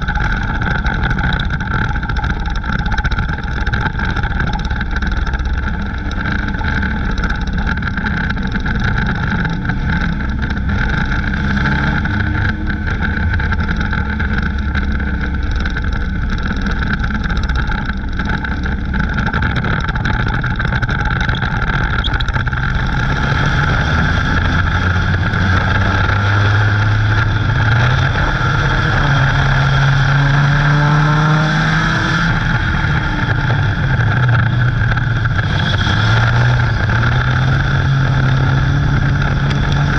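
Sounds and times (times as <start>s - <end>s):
pack of racing cars: 0.0s - 39.9s
race car engine revving: 0.0s - 39.9s.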